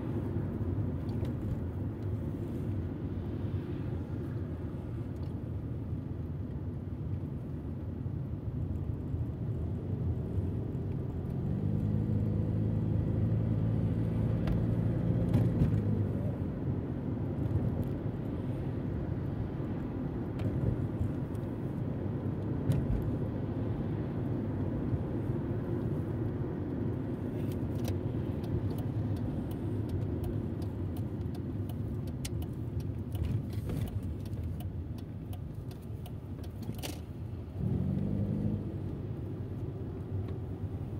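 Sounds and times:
car engine from inside: 0.0 - 40.9
road noise: 0.0 - 40.9
clicks and rattles inside car: 27.4 - 37.2.

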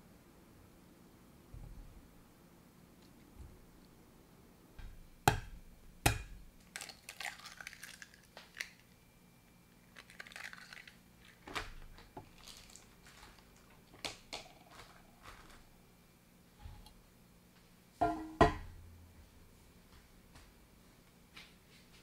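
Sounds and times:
eggshells crackling: 6.6 - 9.0, 9.8 - 15.8.

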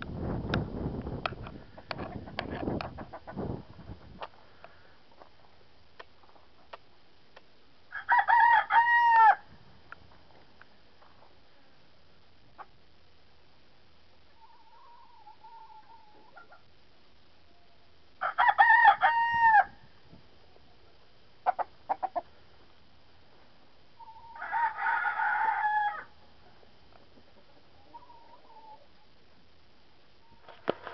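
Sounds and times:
rooster crowing: 7.9 - 9.4, 18.2 - 19.8, 24.0 - 26.1
faint hen calls: 14.4 - 16.7, 24.0 - 26.2, 27.4 - 29.1
rooster clucks: 21.4 - 22.3.

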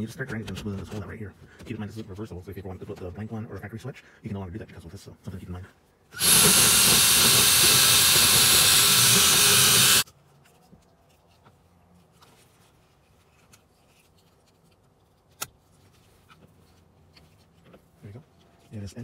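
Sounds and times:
drill grinding plastic: 6.2 - 10.0.

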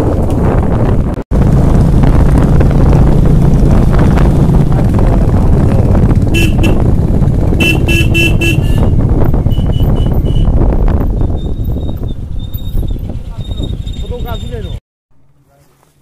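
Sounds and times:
motorcycle engine running: 0.0 - 14.3
wind noise: 0.0 - 14.8
horn tooting: 6.3 - 6.9, 7.5 - 10.6.

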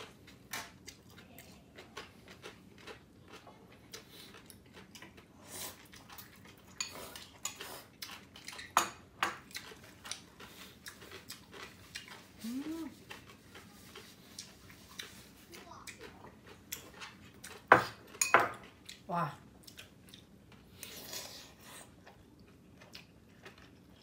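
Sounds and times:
noodles slurped and chewed: 0.0 - 8.8, 9.4 - 24.0.

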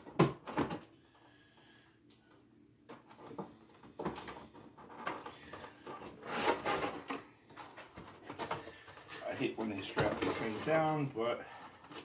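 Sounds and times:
cardboard rustling and scraping: 2.9 - 12.0.

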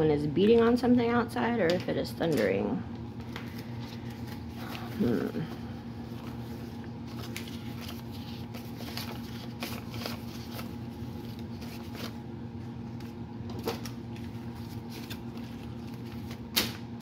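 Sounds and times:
steady low hum: 0.0 - 17.0
paper banknotes rustling: 6.0 - 12.2, 12.9 - 16.8.

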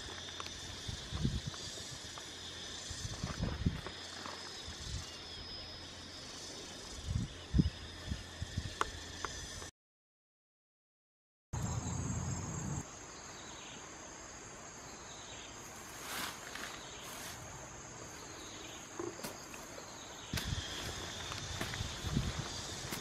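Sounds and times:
high-pitched insect trill: 0.0 - 9.7, 11.6 - 23.0
hand digging in dry soil: 20.3 - 23.0.

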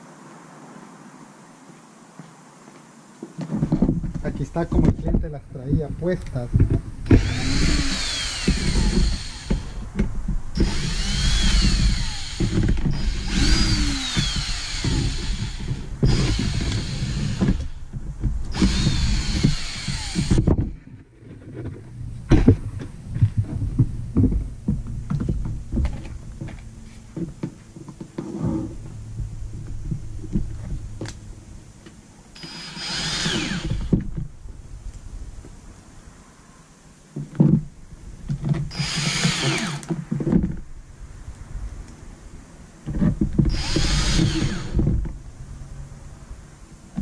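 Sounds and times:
cordless drill driving screws: 7.1 - 9.8, 10.6 - 17.8, 18.5 - 20.5, 32.4 - 34.0, 38.7 - 39.9, 43.5 - 44.8.

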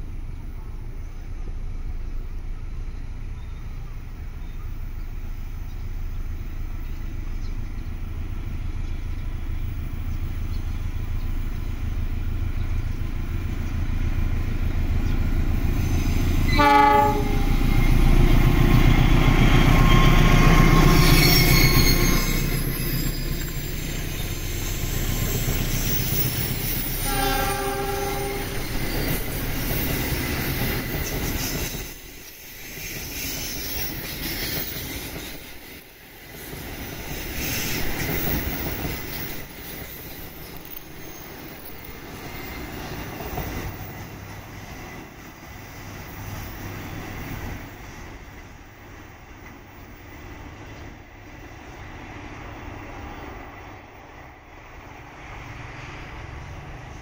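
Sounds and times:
train wheels squealing: 12.9 - 53.5
train horn: 16.4 - 18.0, 27.0 - 28.8.

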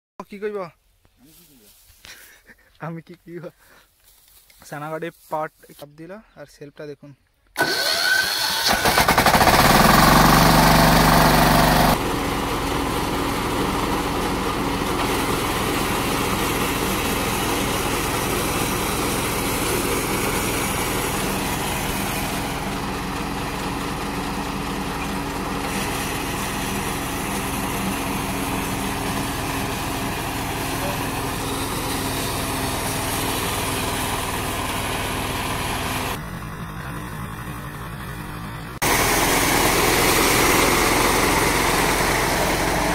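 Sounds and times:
small engine revving and running: 7.6 - 12.2, 38.8 - 42.9.

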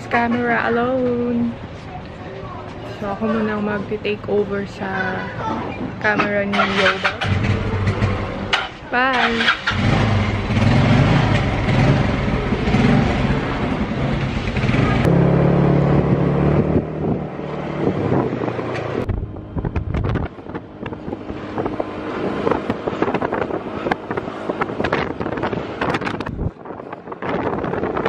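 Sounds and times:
wind buffeting microphone: 15.8 - 28.0.

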